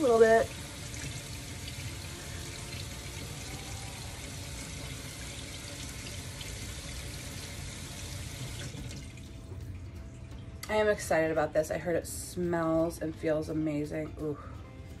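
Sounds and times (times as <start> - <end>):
tap water pouring into sink: 0.0 - 10.7.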